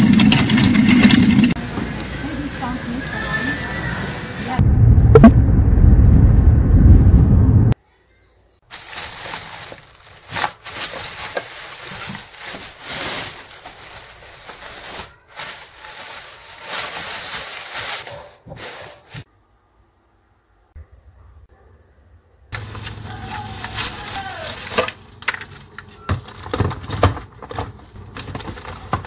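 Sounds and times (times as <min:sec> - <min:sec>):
plastic bags rustling: 0:08.6 - 0:19.3, 0:22.6 - 0:29.0.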